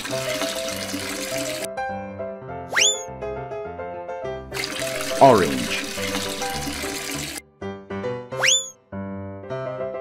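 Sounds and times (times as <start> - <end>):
liquid pouring into a container: 0.0 - 1.7, 4.6 - 7.4
cheerful children's music: 5.0 - 6.6, 7.8 - 8.8.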